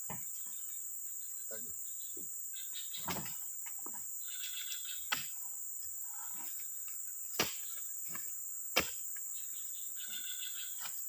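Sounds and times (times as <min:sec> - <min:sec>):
insects buzzing: 0:00.0 - 0:11.0
fruit bunches thudding on truck bed: 0:03.0 - 0:03.4.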